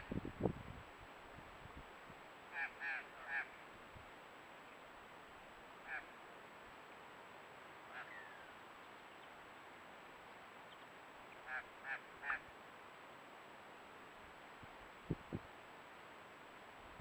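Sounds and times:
faint steady hiss: 0:00.0 - 0:17.0
short bird calls: 0:02.5 - 0:03.6, 0:05.8 - 0:06.2, 0:07.9 - 0:08.6, 0:10.7 - 0:12.5.

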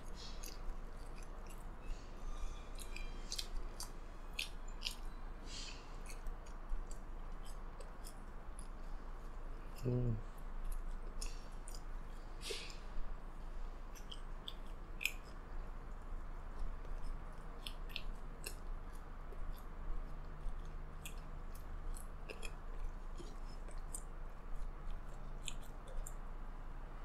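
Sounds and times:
chewing fries: 0:00.0 - 0:27.0
wet mouth clicks and smacks: 0:13.9 - 0:15.4, 0:16.8 - 0:24.1.

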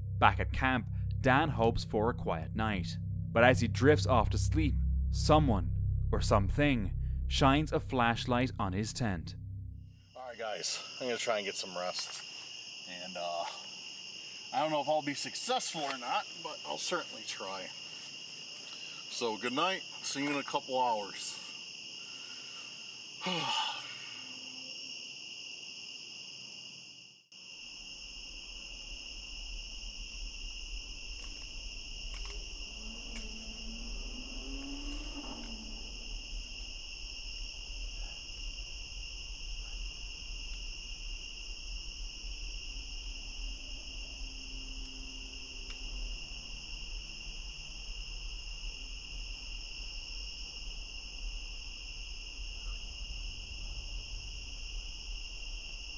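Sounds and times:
faint low rumble: 0:00.0 - 0:10.3, 0:28.0 - 0:55.9
crickets trilling: 0:00.0 - 0:55.9.

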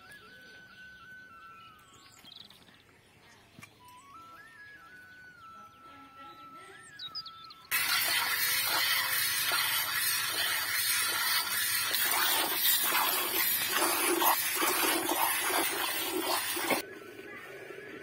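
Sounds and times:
milk squirting into metal bucket: 0:07.7 - 0:16.8.

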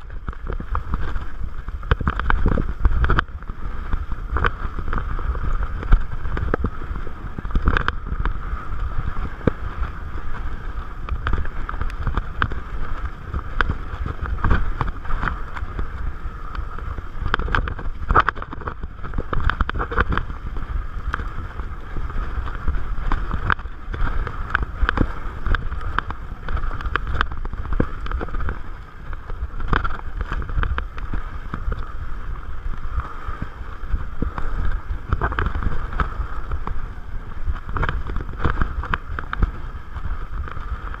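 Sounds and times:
bike clattering and rattling: 0:00.0 - 0:41.0
bike tyre noise: 0:00.0 - 0:41.0
wind rumbling on microphone: 0:00.0 - 0:41.0.

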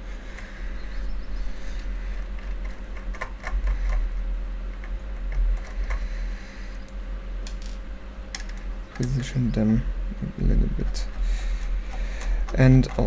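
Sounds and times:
steady low rumble: 0:00.0 - 0:13.0
handling of tools: 0:10.8 - 0:13.0.

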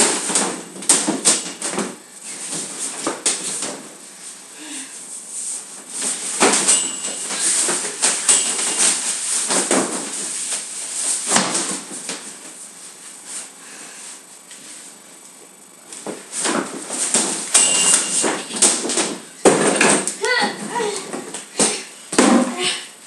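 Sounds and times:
scuffling and fabric rustling: 0:05.3 - 0:15.0.

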